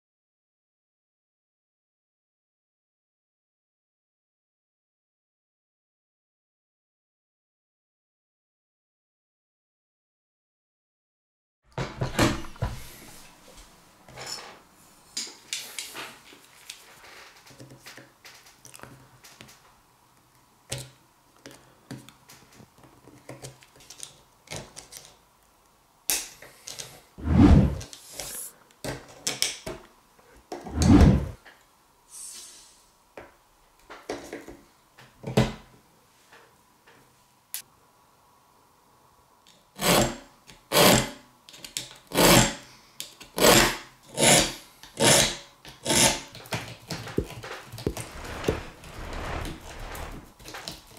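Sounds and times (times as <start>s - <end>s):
hand file scraping steel: 43.4s - 46.3s.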